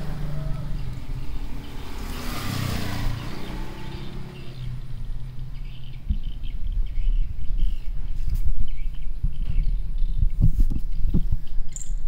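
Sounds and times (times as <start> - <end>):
faint bird chirps: 5.6 - 12.0.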